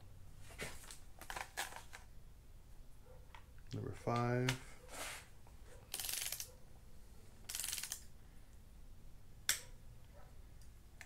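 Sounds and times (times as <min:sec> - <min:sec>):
torque wrench ratchet clicking: 0:05.9 - 0:06.5, 0:07.5 - 0:08.0.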